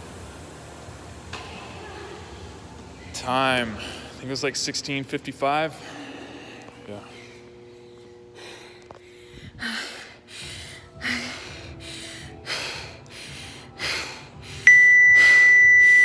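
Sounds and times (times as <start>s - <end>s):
person panting hard: 5.7s - 15.5s
steady electronic beep: 14.7s - 16.0s.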